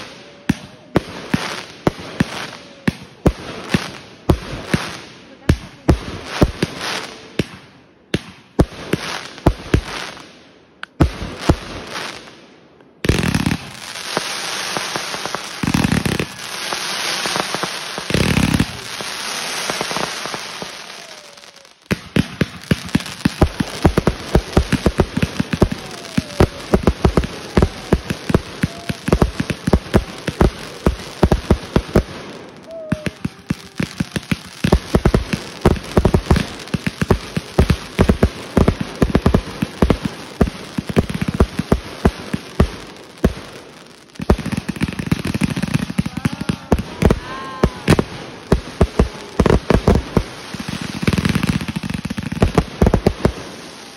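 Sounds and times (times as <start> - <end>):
deep firework booms: 13.0 - 43.6, 44.3 - 53.9
firework bangs: 13.0 - 53.9
firework hiss: 13.0 - 53.9
rapid crackle of small pops: 21.9 - 32.1, 32.9 - 53.4.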